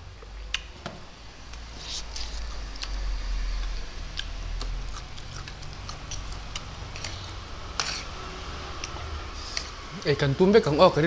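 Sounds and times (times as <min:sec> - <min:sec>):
wet chewing clicks and smacks: 0:03.6 - 0:07.2.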